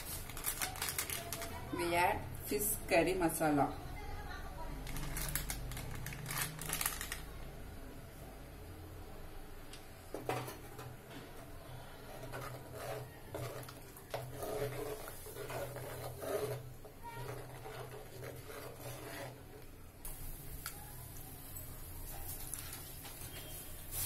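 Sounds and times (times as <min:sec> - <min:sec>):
spoon stirring in clay pot: 0:10.5 - 0:19.7.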